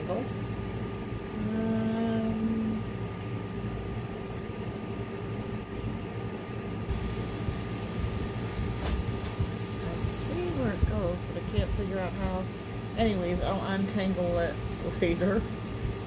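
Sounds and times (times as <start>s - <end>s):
background hum: 0.0s - 16.0s
high whine: 1.0s - 16.0s
woman humming: 1.3s - 3.0s.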